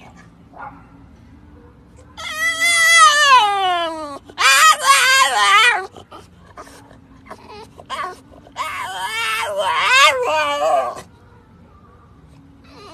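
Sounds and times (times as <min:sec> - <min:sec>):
dog whining and squealing: 0:02.2 - 0:11.1, 0:12.7 - 0:12.9.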